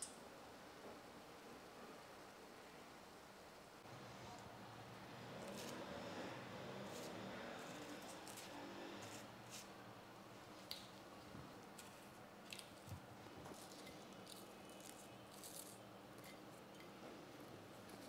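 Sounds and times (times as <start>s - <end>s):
fried pastries clicking and crackling: 10.6s - 16.9s.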